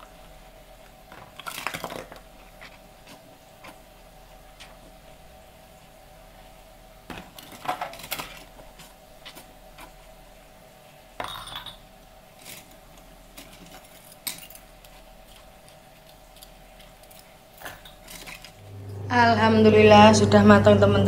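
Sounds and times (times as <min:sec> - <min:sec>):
dishes and cutlery clattering: 0:07.1 - 0:08.6, 0:11.2 - 0:14.7, 0:17.1 - 0:18.6.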